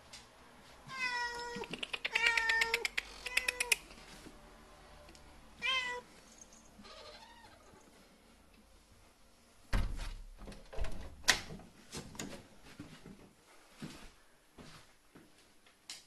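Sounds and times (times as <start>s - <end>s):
cats meowing: 0.8s - 3.9s, 5.6s - 6.1s, 6.7s - 7.9s.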